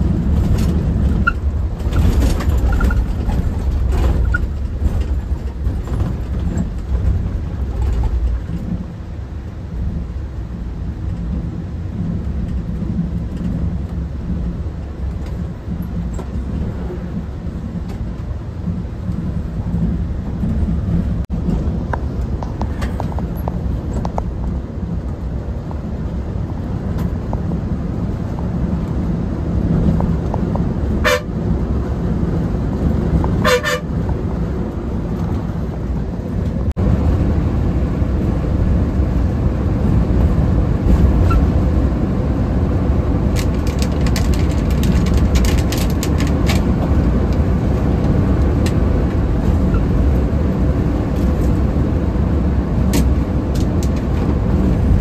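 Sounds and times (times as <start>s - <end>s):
bus engine rumble: 0.0s - 55.0s
bus horn honking: 30.9s - 31.5s, 33.4s - 34.1s.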